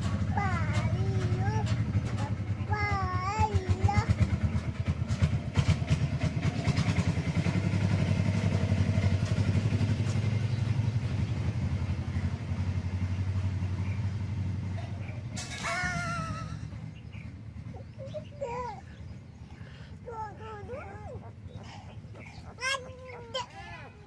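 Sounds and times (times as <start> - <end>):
engine running with low rumble: 0.0 - 24.0.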